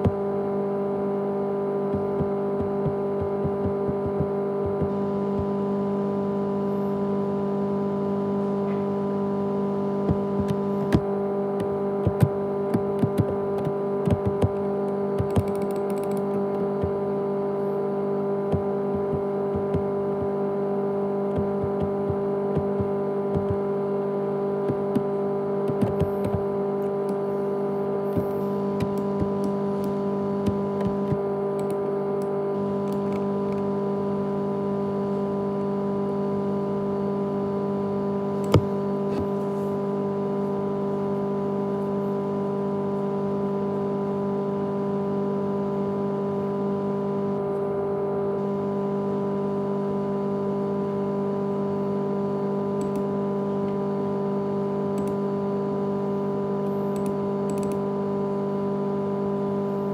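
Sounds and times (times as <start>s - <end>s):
hard disk drive humming: 0.0s - 59.9s
hard drive sharp click: 10.1s - 17.0s, 24.6s - 27.2s, 38.4s - 39.3s.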